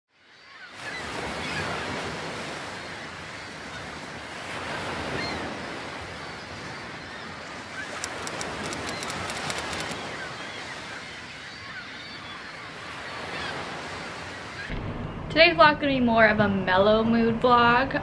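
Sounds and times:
small waves on sandy shore: 0.4s - 14.7s
faint high clicks: 7.9s - 10.1s.

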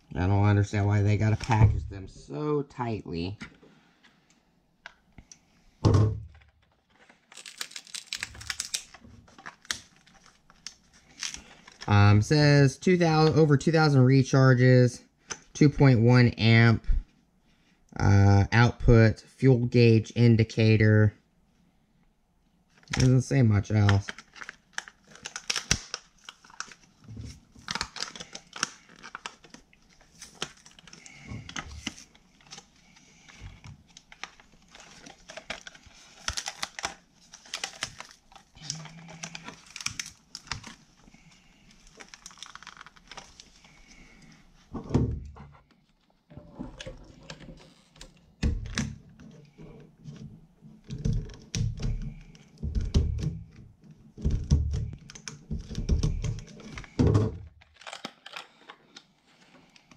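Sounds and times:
plastic blister pack crackling: 6.8s - 11.9s, 22.7s - 44.6s, 54.8s - 59.9s
scissors cutting plastic: 57.6s - 59.1s.

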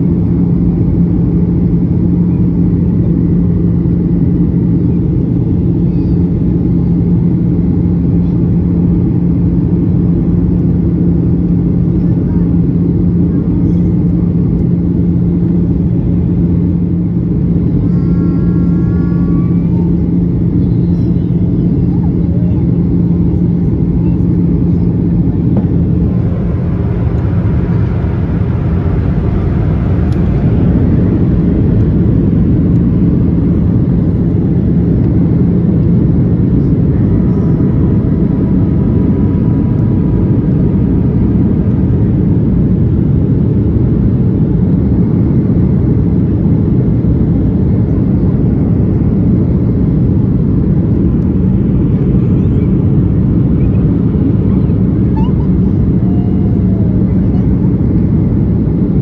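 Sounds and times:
airplane cabin roar: 0.0s - 59.0s
low steady hum: 0.0s - 59.0s.

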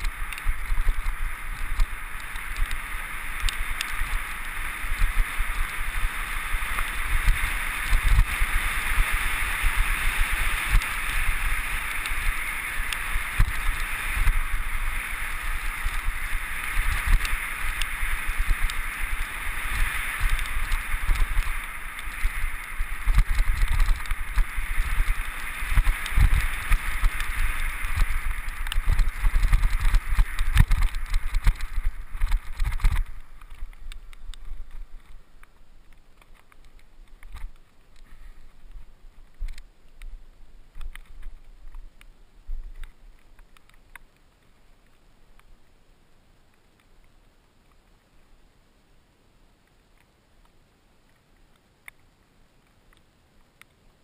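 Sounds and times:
wind rushing over microphone: 0.0s - 35.2s.

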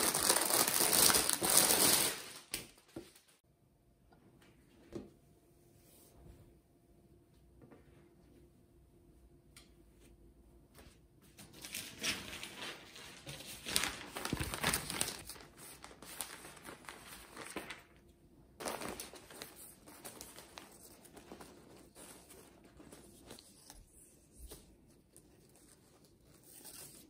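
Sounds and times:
crinkling and rustling: 10.8s - 18.0s, 18.6s - 27.0s.

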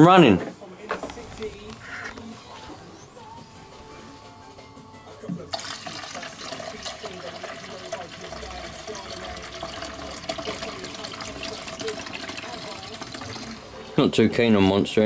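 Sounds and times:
liquid pouring into fuel tank: 5.3s - 13.9s.

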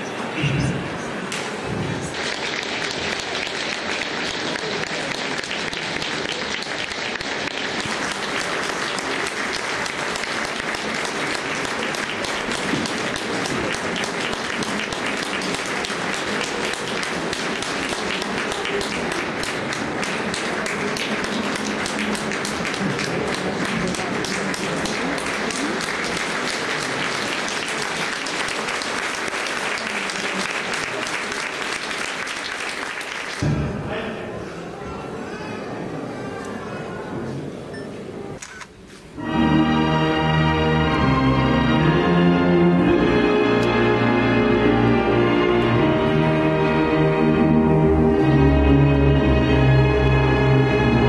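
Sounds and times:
crowd applauding: 1.5s - 33.5s.

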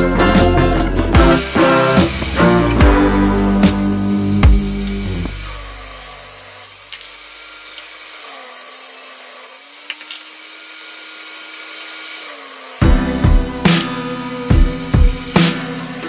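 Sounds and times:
background music: 0.0s - 6.0s, 12.8s - 16.0s
table saw cutting plywood: 0.0s - 16.0s.

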